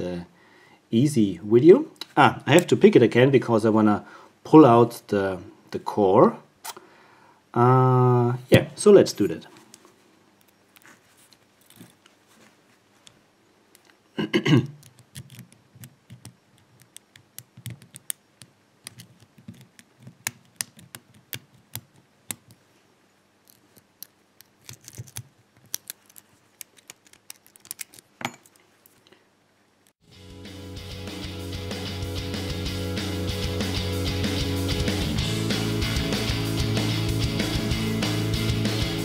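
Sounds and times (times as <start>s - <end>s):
lock pick clicking and scraping: 14.8s - 22.6s, 23.4s - 29.0s.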